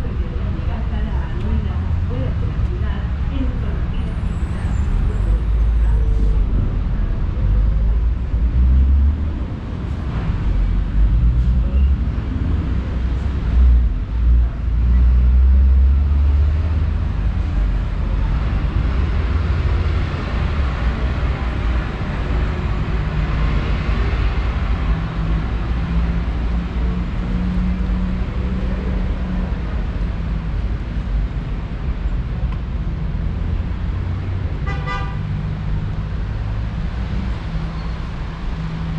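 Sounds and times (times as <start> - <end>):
traffic rumble: 0.0 - 38.9.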